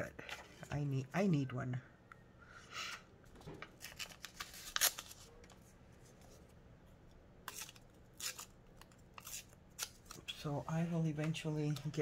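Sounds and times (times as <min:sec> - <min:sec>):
paper rustling and crinkling: 0:03.8 - 0:06.4.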